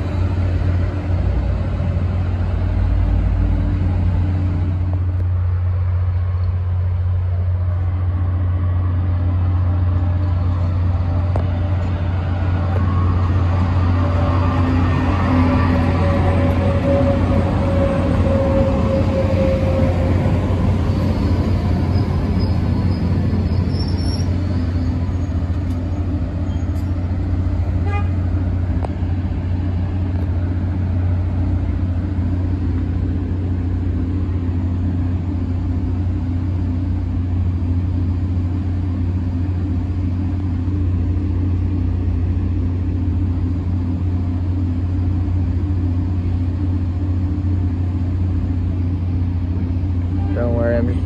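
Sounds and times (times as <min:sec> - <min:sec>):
faint high squeal: 0:21.0 - 0:25.4, 0:26.5 - 0:26.8.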